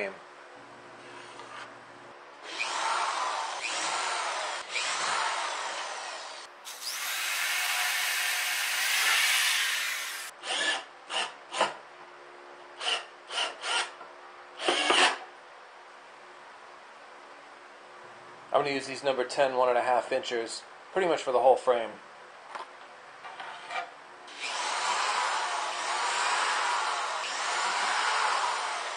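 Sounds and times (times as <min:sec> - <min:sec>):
electric drill running into wood: 0:02.4 - 0:11.3, 0:24.3 - 0:28.9.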